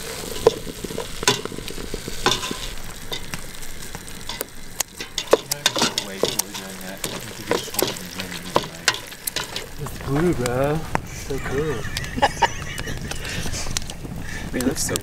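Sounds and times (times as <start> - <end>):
spoon stirring and scraping: 0.0 - 10.2
food sizzling in a pan: 0.0 - 15.0.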